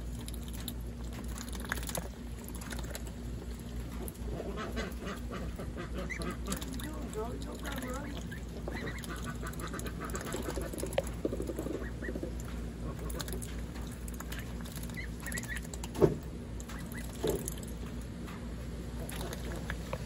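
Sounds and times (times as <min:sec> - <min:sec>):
ducks dabbling in water: 0:00.0 - 0:20.0
quiet duck quacks: 0:04.3 - 0:07.0, 0:08.6 - 0:10.8.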